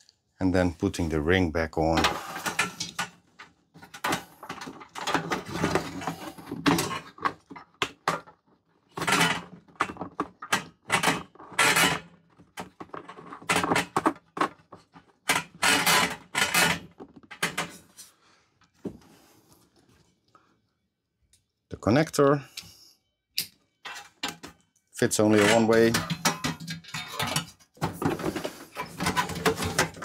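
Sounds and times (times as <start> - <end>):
plastic parts scraping and clicking: 1.9 - 18.1, 23.8 - 30.0.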